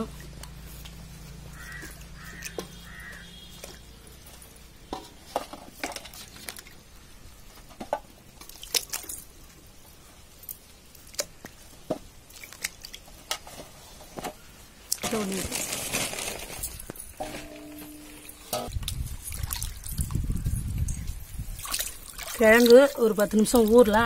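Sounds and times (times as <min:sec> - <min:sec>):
water splashing and dripping: 0:07.4 - 0:13.5, 0:18.6 - 0:24.0.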